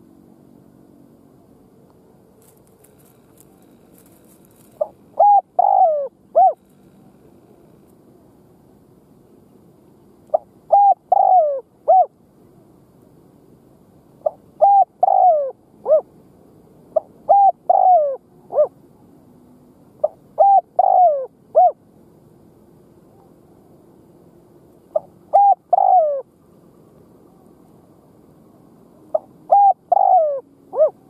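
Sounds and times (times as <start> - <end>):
dove cooing: 2.9 - 7.3, 10.3 - 12.1, 14.2 - 16.1, 16.9 - 18.8, 20.0 - 21.8, 24.9 - 26.3, 29.1 - 31.0.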